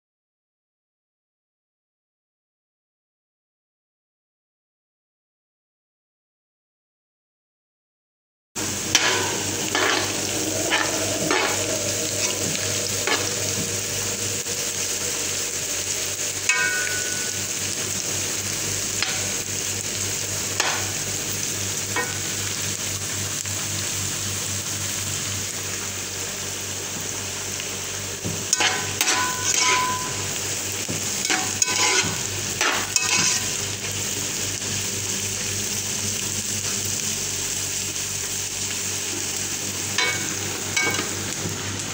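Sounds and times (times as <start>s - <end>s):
onions sizzling in a frying pan: 8.6s - 41.9s
metal spoon scraping a pan: 8.9s - 13.9s, 28.5s - 30.4s, 31.2s - 33.6s.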